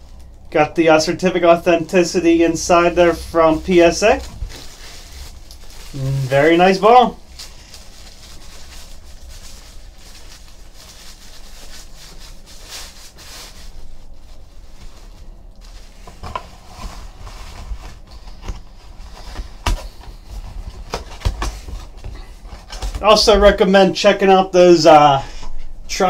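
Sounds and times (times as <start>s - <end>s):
cloth rustling: 3.0s - 19.4s.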